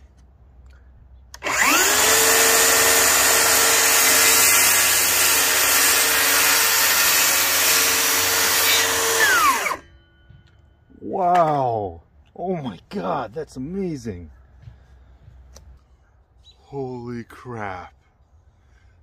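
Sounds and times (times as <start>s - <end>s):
circular saw cutting wood: 1.4s - 9.9s.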